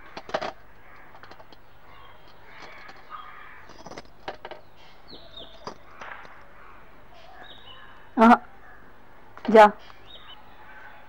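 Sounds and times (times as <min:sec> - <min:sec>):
harsh cawing calls: 0:00.0 - 0:04.0.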